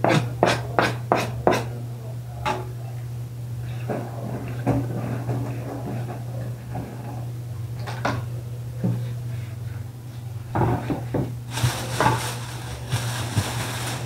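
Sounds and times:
steady low hum: 0.0 - 14.0
steady hiss: 11.5 - 14.0.

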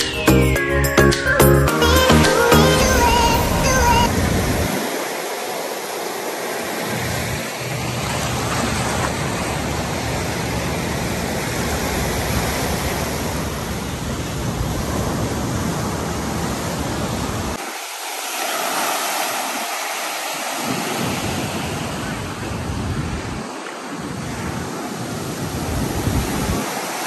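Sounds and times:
ocean surf breaking: 1.2 - 27.0
low rumble: 2.8 - 4.7.

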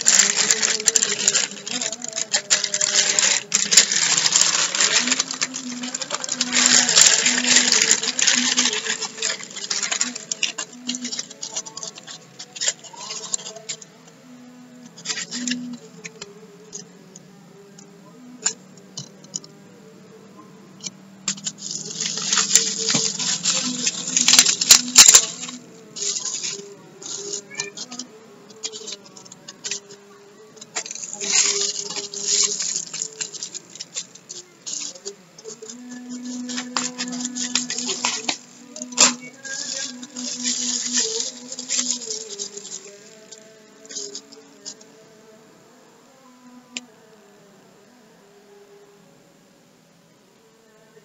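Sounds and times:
packaging crinkling and rustling: 0.0 - 13.8, 15.0 - 16.8, 21.3 - 30.0, 30.6 - 44.9.

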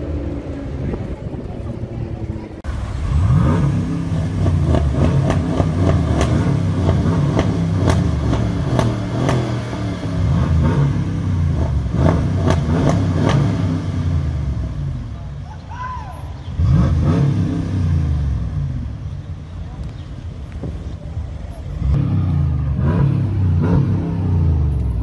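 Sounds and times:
exhaust pops and crackles: 0.0 - 14.0, 19.6 - 21.9
car engine revving: 0.0 - 15.3, 16.5 - 19.3, 21.6 - 25.0.

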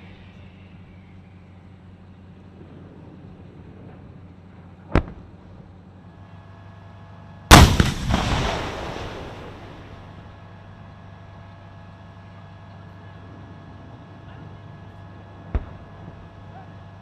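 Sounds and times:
large gun boom with echo: 7.5 - 10.1
sharp crack: 7.5 - 10.2.

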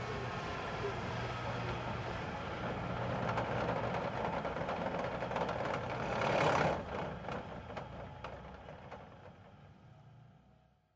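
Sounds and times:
ambulance driving by: 0.0 - 4.9.

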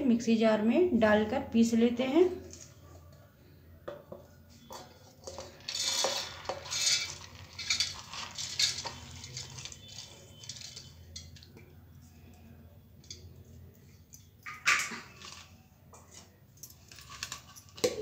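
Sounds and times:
faint handling sounds: 2.4 - 14.4
metal bowl scraping and clinking: 4.5 - 12.4, 13.0 - 18.0.

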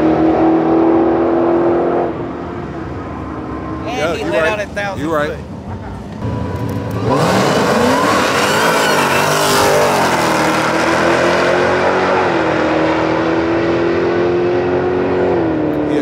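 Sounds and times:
car engine accelerating hard: 6.2 - 16.0.

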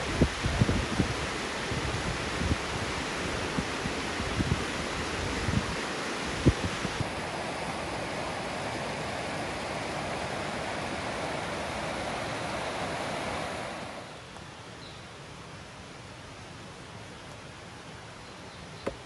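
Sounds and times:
water flowing over rocks: 0.0 - 14.6.

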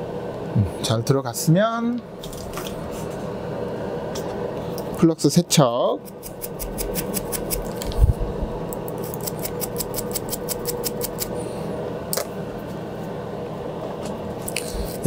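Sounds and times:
fan hum: 0.0 - 15.0
stiff brush scrubbing circuit board: 6.1 - 7.8, 9.2 - 11.3.

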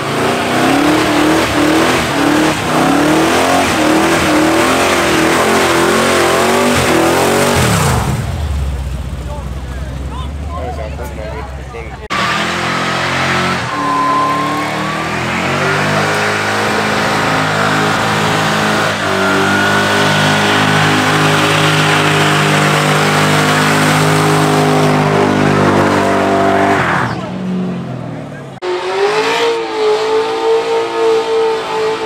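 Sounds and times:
car engine revving high: 0.0 - 8.5, 12.1 - 32.0
tyre squeal: 13.2 - 24.4.

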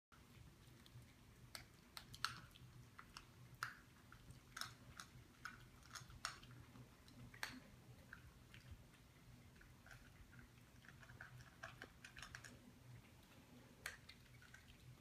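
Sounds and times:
dog crunching food: 0.1 - 15.0.

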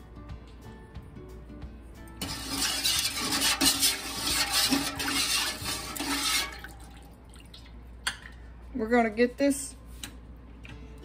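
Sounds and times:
spoon stirring liquid in metal pot: 2.2 - 6.9.

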